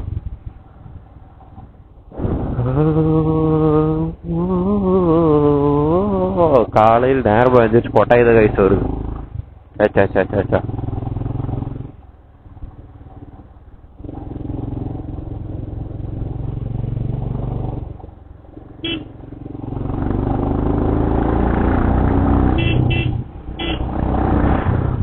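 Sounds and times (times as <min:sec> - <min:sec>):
motorcycle engine revving: 0:00.0 - 0:25.0
short horn toots: 0:18.8 - 0:19.1, 0:22.5 - 0:23.9.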